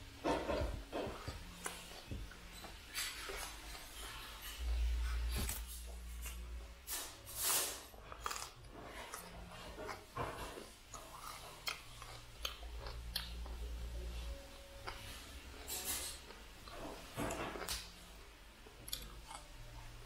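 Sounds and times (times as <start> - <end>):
chewing raw broccoli crunches: 8.1 - 10.1.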